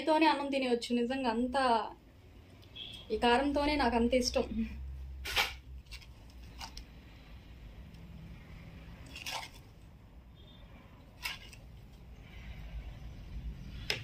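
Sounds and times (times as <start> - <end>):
crisp crackles of fried food: 9.0 - 9.7.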